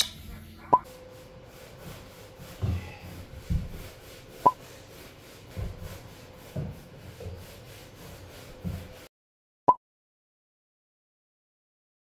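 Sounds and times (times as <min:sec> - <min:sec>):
brush scrubbing a rug: 0:00.8 - 0:09.1.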